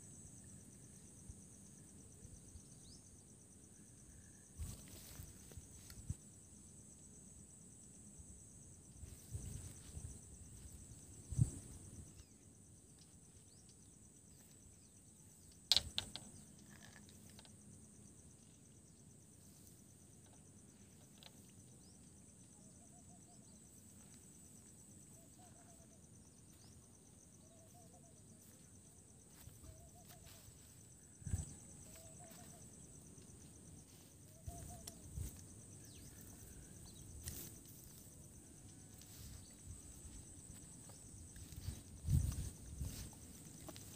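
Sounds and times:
crickets droning: 0.0 - 43.9.

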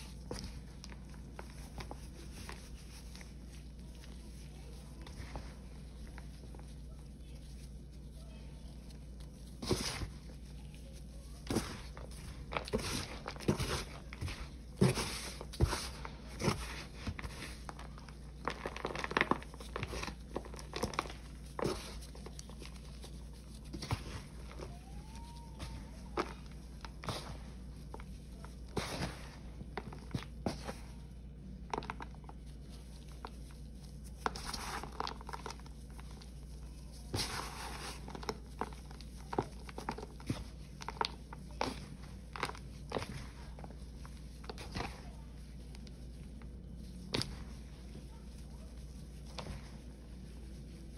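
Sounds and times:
powder crunching and crackling: 0.0 - 50.9
powder rustling: 0.0 - 50.9.

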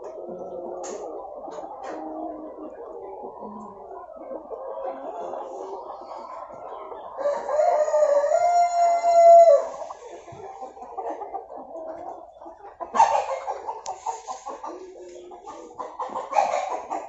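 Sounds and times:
hens clucking: 0.0 - 17.0
rooster crowing: 7.2 - 9.7.

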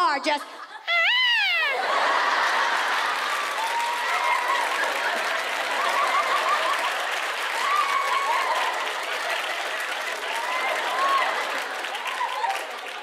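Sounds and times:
audience applauding and cheering: 1.6 - 13.0
voices whooping: 3.5 - 4.9, 7.6 - 8.8.

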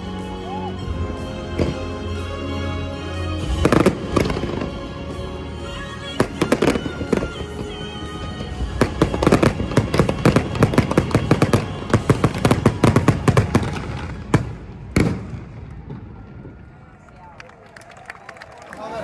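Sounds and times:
fireworks cracks and booms: 6.2 - 16.8.

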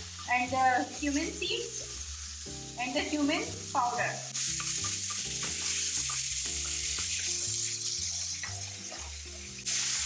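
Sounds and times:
chicken sizzling in hot oil: 0.0 - 10.0
soft background music: 0.0 - 10.0
wooden spatula stirring in pan: 4.6 - 9.4.

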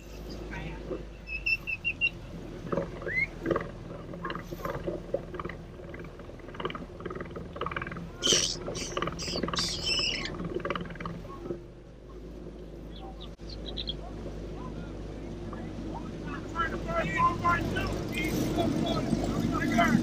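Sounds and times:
parrot screeching: 8.2 - 10.4
parrot chattering and squawking: 8.2 - 10.5.

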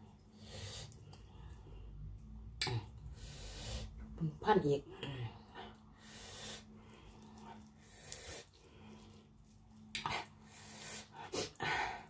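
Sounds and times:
low steady hum: 0.0 - 12.0
breathing: 0.3 - 2.0, 3.1 - 4.0, 5.5 - 9.3, 10.5 - 12.0
chewing and smacking: 6.8 - 10.6.

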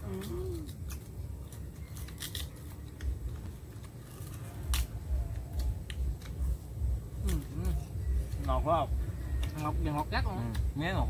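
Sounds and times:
chewing: 0.0 - 6.6
sugarcane rind cracking: 0.0 - 11.0.

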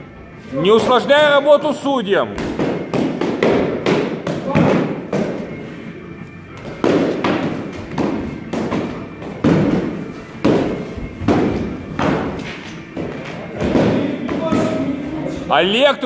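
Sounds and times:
padded swords thudding: 2.4 - 5.5, 6.6 - 15.0.

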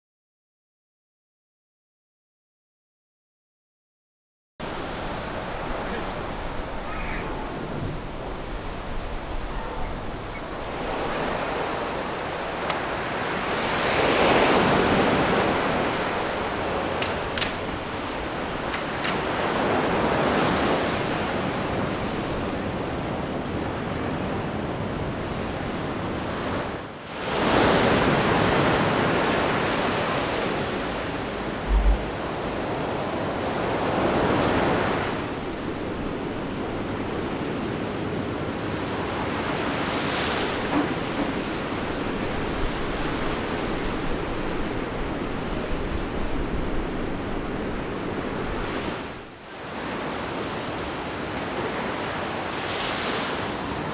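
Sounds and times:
waves breaking: 4.6 - 22.9, 26.4 - 36.6
wind on microphone: 27.9 - 36.8
brief low thump: 31.6 - 32.1.

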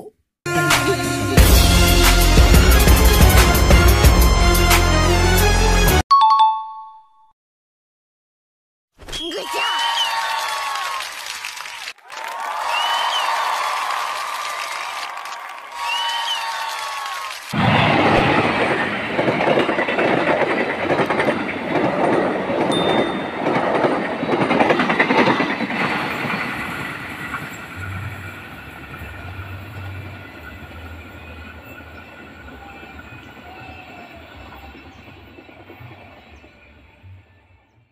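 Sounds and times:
train wheels clattering over rails: 18.0 - 33.9.

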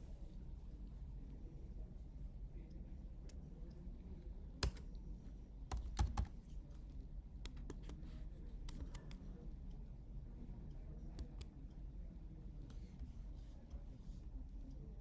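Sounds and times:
computer keyboard typing: 4.5 - 5.0, 5.6 - 6.5.

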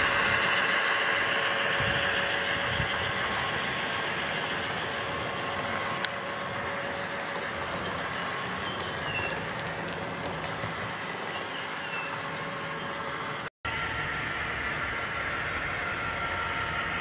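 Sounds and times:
model train wheels on rail: 0.0 - 17.0.

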